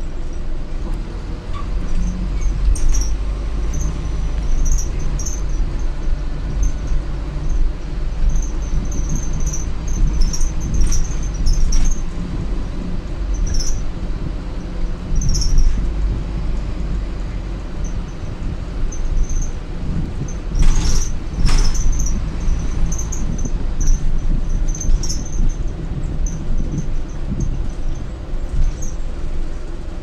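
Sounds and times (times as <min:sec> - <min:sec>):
bus diesel engine rumble: 0:00.0 - 0:30.0
road noise: 0:00.0 - 0:30.0
high-pitched squeaks: 0:01.5 - 0:07.6, 0:08.2 - 0:12.2, 0:13.3 - 0:13.9, 0:15.1 - 0:15.9, 0:20.2 - 0:28.0.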